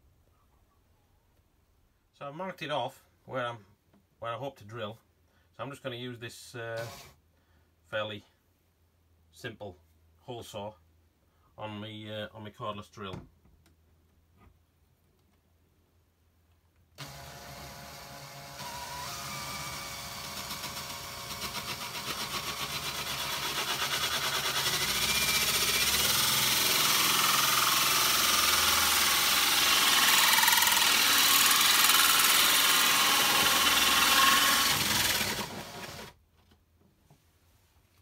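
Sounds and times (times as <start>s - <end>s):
drill cutting through wood: 6.8s - 7.2s, 17.0s - 36.2s.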